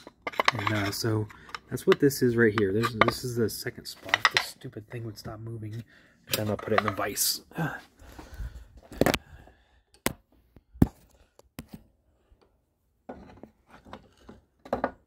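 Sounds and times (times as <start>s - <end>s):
metal clanks and clatter: 0.0s - 3.4s, 4.0s - 4.6s.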